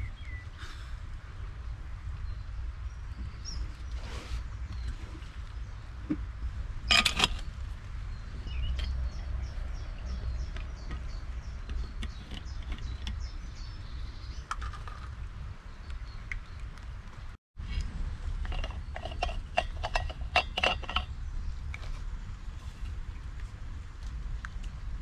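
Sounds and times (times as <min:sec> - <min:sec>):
birds chirping: 0:00.0 - 0:17.4
steady low rumble: 0:04.4 - 0:25.0.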